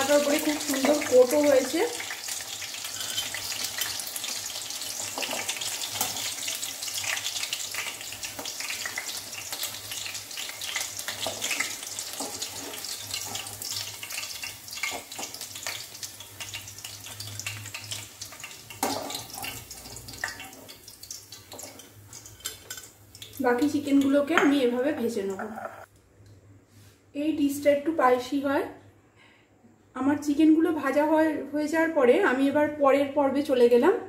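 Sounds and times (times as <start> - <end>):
chicken deep-frying in oil: 0.0 - 24.2.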